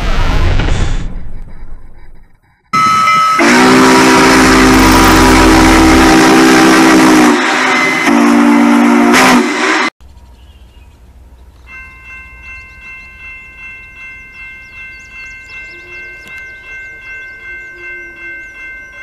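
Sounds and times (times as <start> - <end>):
steam whistle blasts: 2.8 - 9.9.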